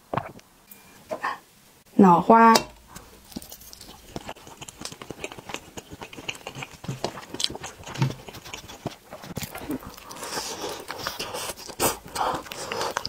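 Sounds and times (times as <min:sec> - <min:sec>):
wet chewing and mouth smacks: 0:02.9 - 0:13.0.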